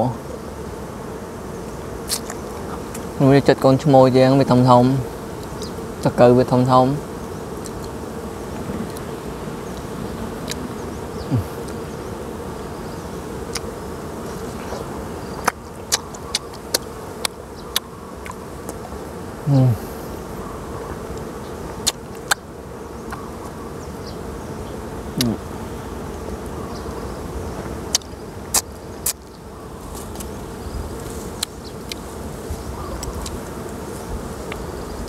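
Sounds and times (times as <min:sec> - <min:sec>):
honeybees buzzing: 0:00.0 - 0:35.0.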